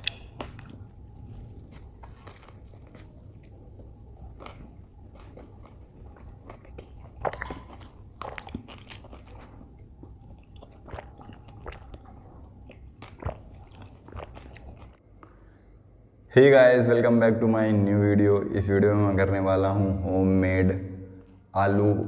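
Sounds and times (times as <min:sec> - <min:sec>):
wet mouth clicks: 0:00.0 - 0:00.8, 0:06.8 - 0:08.7
chewing crunchy sandwich: 0:00.0 - 0:15.1.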